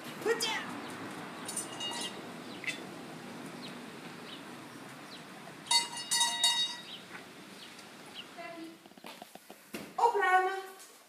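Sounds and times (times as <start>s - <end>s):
doorbell chime: 1.6s - 2.2s, 5.7s - 7.0s.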